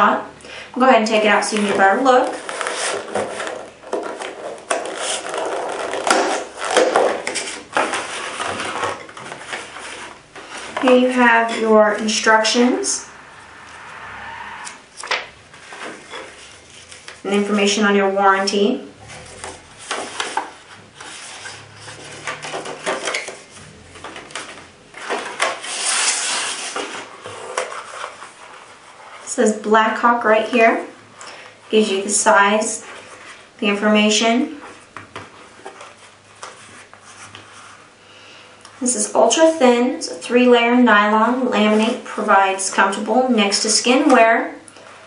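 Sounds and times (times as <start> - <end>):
cardboard scraping on plastic: 1.5 - 12.1, 19.0 - 29.3
paper rustling: 1.6 - 11.6.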